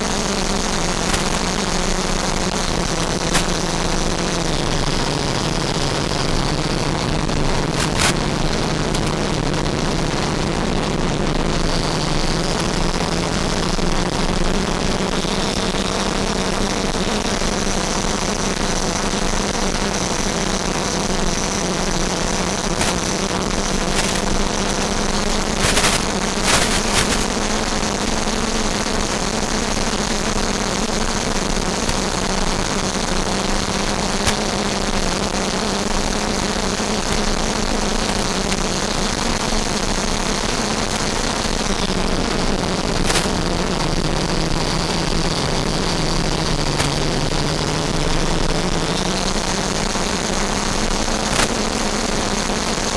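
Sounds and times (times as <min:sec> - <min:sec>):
short crackles: 0:00.0 - 0:04.4, 0:07.6 - 0:10.1, 0:20.0 - 0:28.1, 0:31.0 - 0:44.0, 0:46.5 - 0:47.3, 0:49.0 - 0:52.1
electric ducted fan whining: 0:00.0 - 0:52.9.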